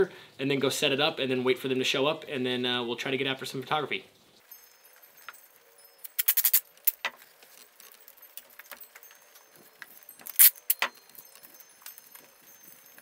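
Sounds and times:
handling noises of twigs: 0:04.4 - 0:13.0
tape tearing in rasping rips: 0:06.1 - 0:07.0.

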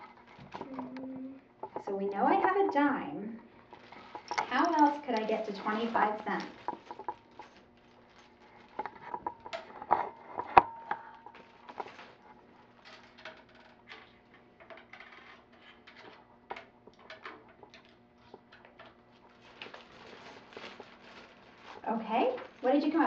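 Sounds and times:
small objects clicking and tapping: 0:03.7 - 0:12.1.

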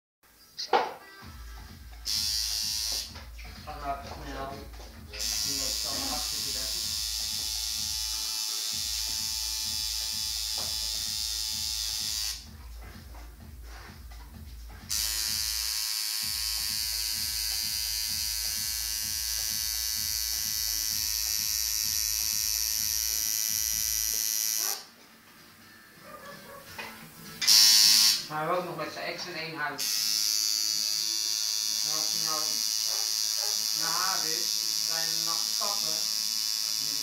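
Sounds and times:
tattoo machine buzzing: 0:02.0 - 0:03.6, 0:04.4 - 0:12.6, 0:14.7 - 0:24.9, 0:27.4 - 0:28.3, 0:29.8 - 0:37.0.

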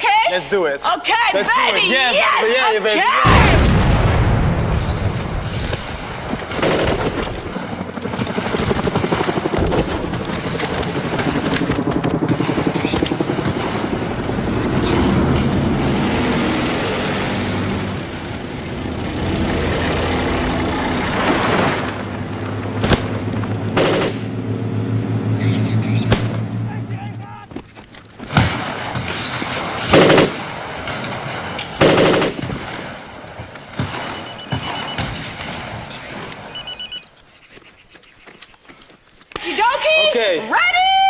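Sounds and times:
explosion: 0:03.2 - 0:07.6
gunfire: 0:03.2 - 0:13.9, 0:22.8 - 0:24.3, 0:26.0 - 0:26.5, 0:28.3 - 0:36.5.

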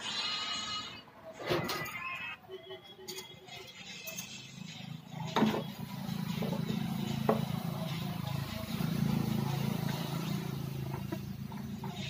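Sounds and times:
diesel engine running: 0:04.4 - 0:12.0.

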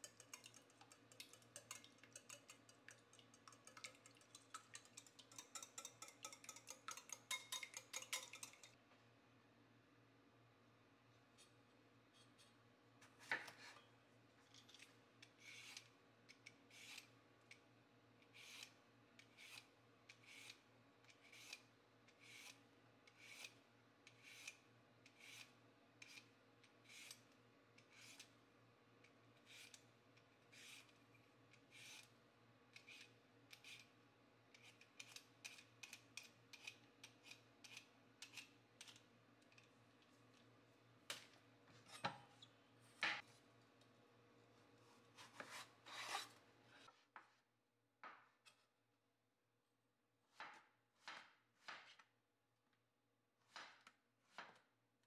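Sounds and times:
peeler scraping cucumber: 0:15.4 - 0:15.9, 0:16.7 - 0:17.1, 0:18.3 - 0:28.3, 0:29.4 - 0:29.8, 0:30.5 - 0:32.1, 0:32.8 - 0:33.9, 0:34.5 - 0:39.0.

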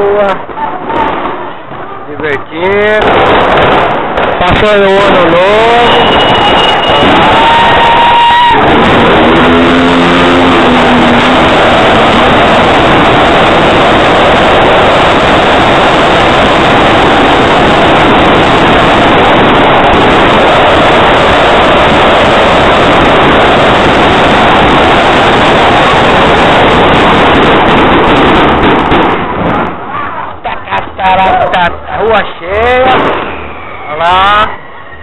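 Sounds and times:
fireworks barrage distorted: 0:00.0 - 0:35.0.

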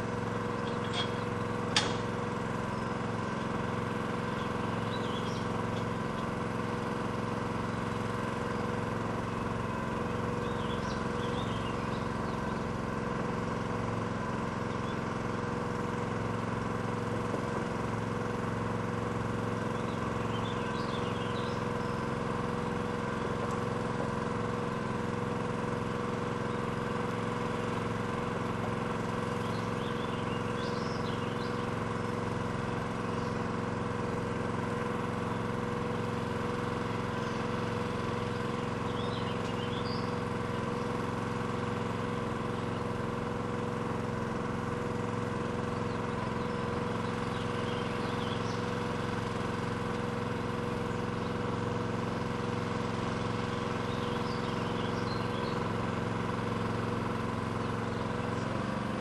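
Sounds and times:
pile driver engine running: 0:00.0 - 0:59.0
birds chirping: 0:00.1 - 0:12.8, 0:19.6 - 0:25.2, 0:26.4 - 0:33.8, 0:34.5 - 0:42.9, 0:45.4 - 0:51.6, 0:52.4 - 0:56.0, 0:57.0 - 0:58.8.

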